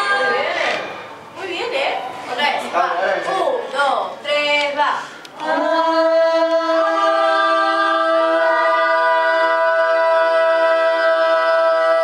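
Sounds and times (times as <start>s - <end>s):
woman singing a long note: 5.4s - 12.0s.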